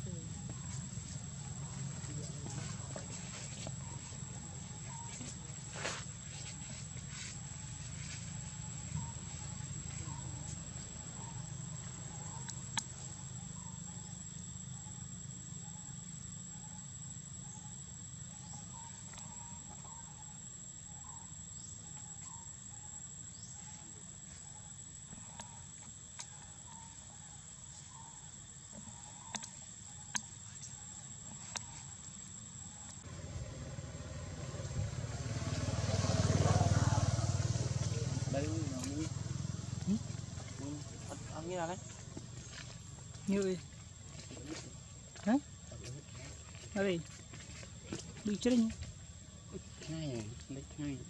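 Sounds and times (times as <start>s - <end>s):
insects droning: 0.0s - 51.0s
low steady rumble: 32.9s - 35.9s.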